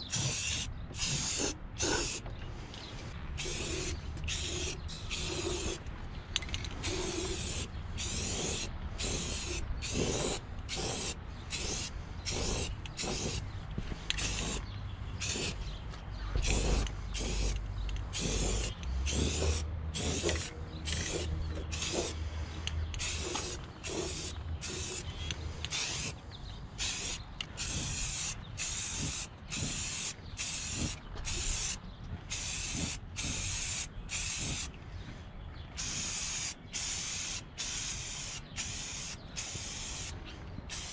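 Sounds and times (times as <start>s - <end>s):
aerosol can spraying: 0.1s - 2.2s, 3.4s - 5.8s, 6.8s - 13.4s, 14.2s - 14.6s, 15.2s - 15.6s, 16.4s - 17.6s, 18.2s - 22.2s, 23.0s - 25.0s, 25.7s - 26.1s, 26.8s - 34.7s, 35.8s - 40.1s.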